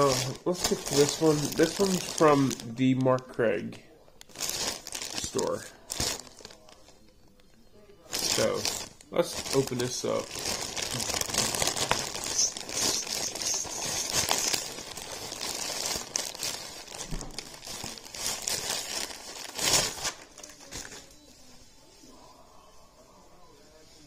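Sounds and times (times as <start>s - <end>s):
plastic bag crinkling: 0.0s - 7.1s, 8.1s - 21.2s.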